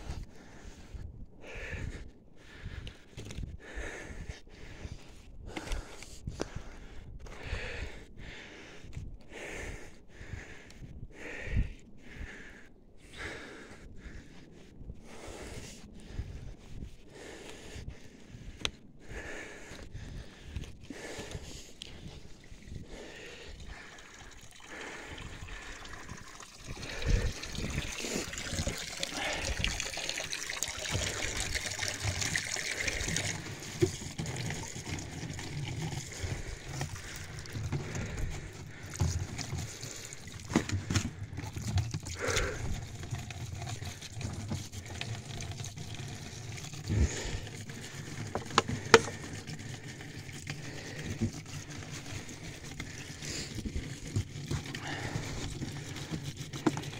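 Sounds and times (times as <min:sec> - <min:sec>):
water pouring into plastic bottles: 0:21.0 - 0:56.9
plastic bottles knocking: 0:48.2 - 0:49.4.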